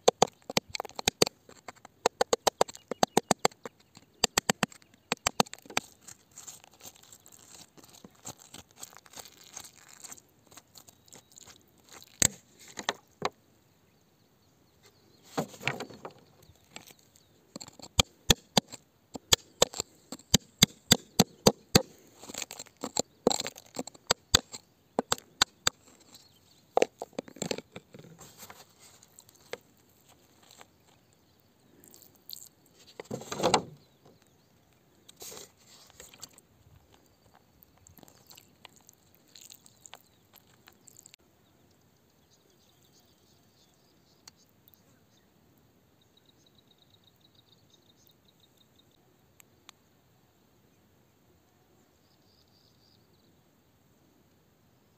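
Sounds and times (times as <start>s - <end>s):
tool scraping and picking rock: 0.0s - 13.3s, 15.2s - 31.1s, 31.8s - 34.3s, 35.0s - 41.1s.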